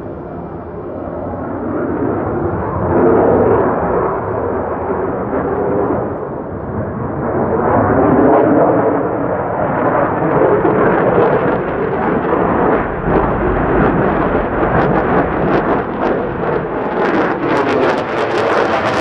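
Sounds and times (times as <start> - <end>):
jet passing overhead: 0.0 - 19.0.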